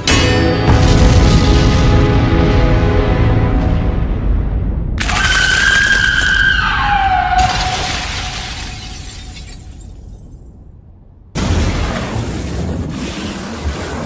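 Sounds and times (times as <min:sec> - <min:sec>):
low rumble: 0:00.7 - 0:05.0
high shrieking cry: 0:05.0 - 0:07.9.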